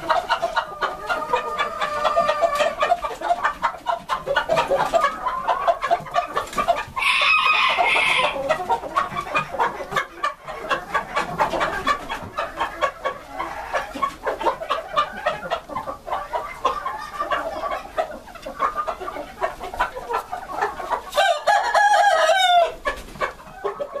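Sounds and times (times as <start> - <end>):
chickens clucking: 0.0 - 24.0
loud drawn-out chicken call: 7.0 - 8.4
rooster crowing: 7.0 - 8.4, 21.2 - 22.8.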